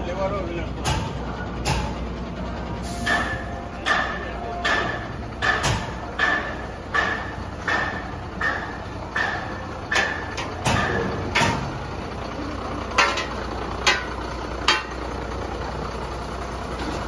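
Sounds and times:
sharp ringing knocks: 3.1s - 11.7s.

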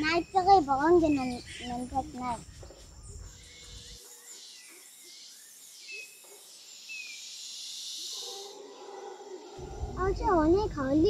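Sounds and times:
high insect hiss: 0.0s - 11.0s.

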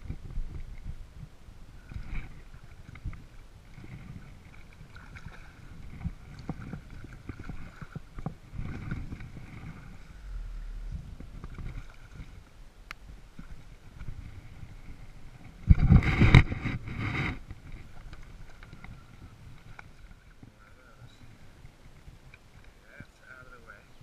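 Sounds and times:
water lapping against kayak hull: 0.0s - 23.8s
wind on microphone: 0.0s - 24.0s.

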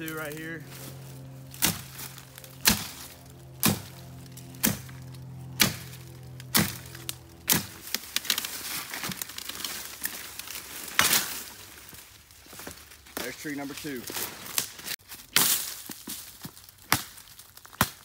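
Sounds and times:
tree falling through brush: 0.0s - 18.0s
machete chopping tree trunk: 1.5s - 9.3s, 10.9s - 11.4s, 15.3s - 16.0s, 16.8s - 18.0s.

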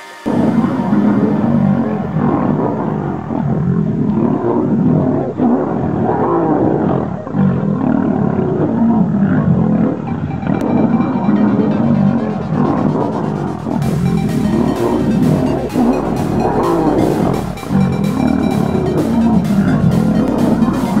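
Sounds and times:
lions growling and snarling: 2.2s - 10.0s.

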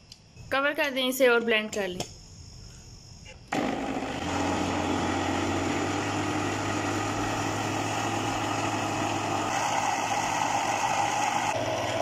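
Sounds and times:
electric blender running: 3.5s - 12.0s.

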